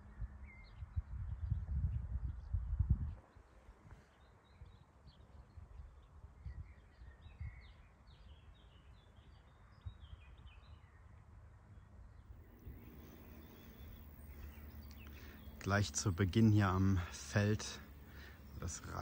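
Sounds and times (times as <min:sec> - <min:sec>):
songbirds chirping: 0:03.2 - 0:19.0
faint low rumble: 0:12.3 - 0:19.0.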